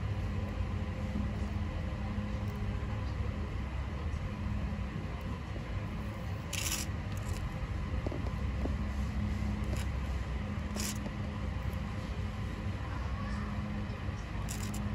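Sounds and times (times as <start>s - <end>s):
tortoises crunching leafy greens: 14.4s - 14.9s.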